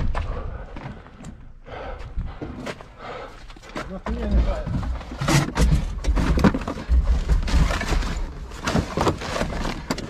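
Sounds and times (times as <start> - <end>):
boxes and objects being shifted: 3.5 - 10.0.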